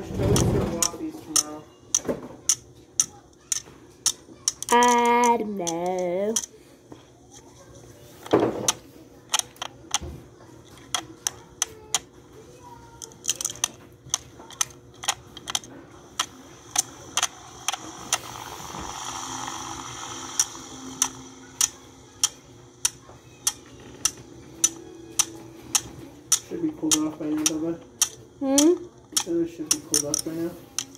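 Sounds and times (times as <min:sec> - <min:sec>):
clock ticking: 0:19.4 - 0:30.1.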